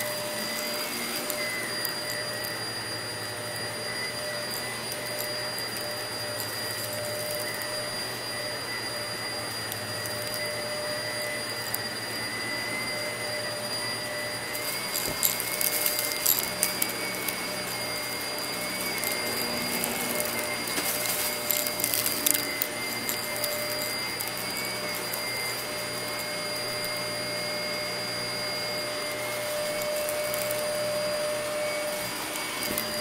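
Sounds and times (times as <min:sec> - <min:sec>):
vacuum cleaner whine: 0:00.0 - 0:33.0
brushroll crackling clicks: 0:14.5 - 0:26.3.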